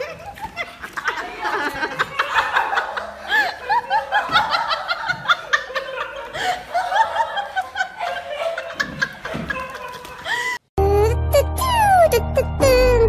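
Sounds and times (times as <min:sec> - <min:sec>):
laugh-like vocal sounds: 0:00.0 - 0:12.9
children's music with bass: 0:10.8 - 0:13.0.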